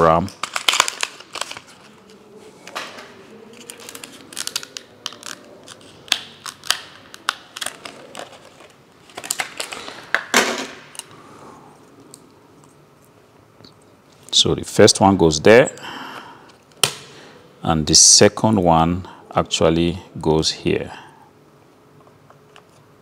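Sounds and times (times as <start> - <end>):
plastic packaging crackling: 0.0 - 11.1.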